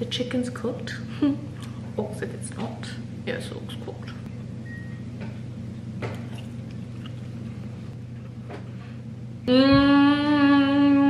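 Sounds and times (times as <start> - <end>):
low hum: 0.0 - 11.0
woman chewing food: 6.2 - 8.4
woman humming mmm: 9.4 - 11.0.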